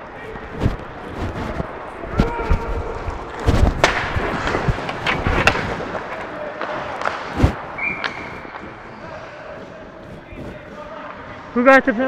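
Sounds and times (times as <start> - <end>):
hockey sticks pads and skates knocking: 0.6 - 9.0.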